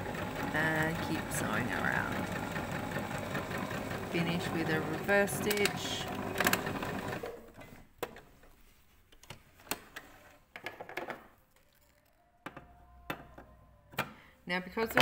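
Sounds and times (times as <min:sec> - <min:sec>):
sewing machine stitching: 0:00.0 - 0:07.9.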